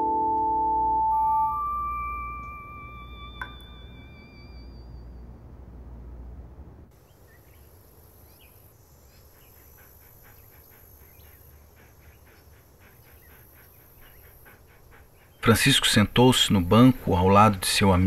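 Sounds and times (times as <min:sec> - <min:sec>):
faint low hum: 0:00.0 - 0:18.0
small birds chirping: 0:07.0 - 0:16.8.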